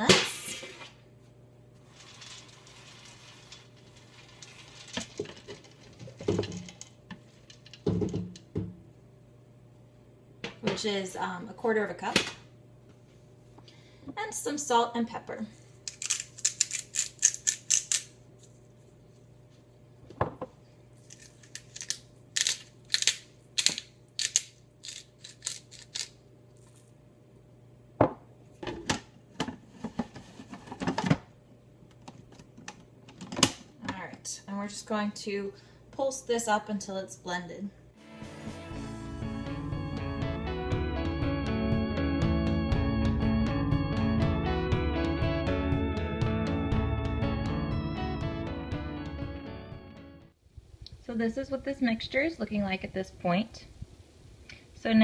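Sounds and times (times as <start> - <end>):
pepper mill grinding: 1.9 - 6.8, 15.8 - 18.1, 21.0 - 26.8
plastic lid clunking and rattling: 5.0 - 6.8.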